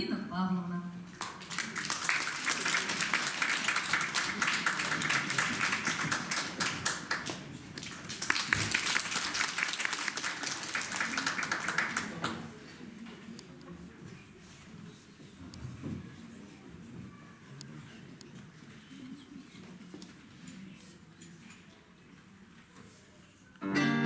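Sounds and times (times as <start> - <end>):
audience applauding: 1.2 - 12.6.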